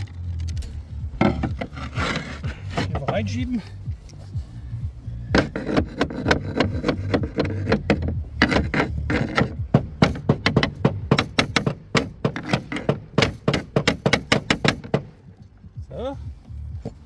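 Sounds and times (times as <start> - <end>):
sharp taps on roofing slate: 5.3 - 15.2.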